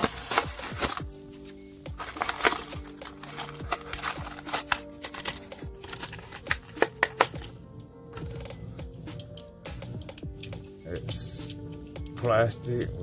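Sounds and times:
cardboard ripping: 0.0s - 1.1s, 2.0s - 7.3s
plastic crinkling: 0.0s - 7.6s.

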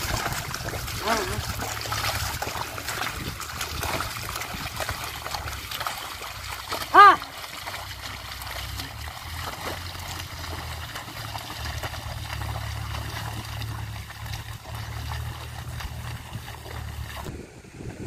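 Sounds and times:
wind on microphone: 0.0s - 5.6s, 15.5s - 18.0s
muddy water splashing: 0.0s - 18.0s.

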